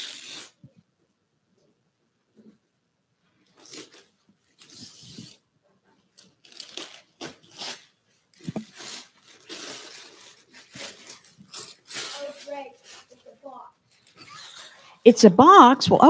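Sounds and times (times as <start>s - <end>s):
wrapping paper tearing: 0.0s - 0.6s, 6.2s - 14.9s.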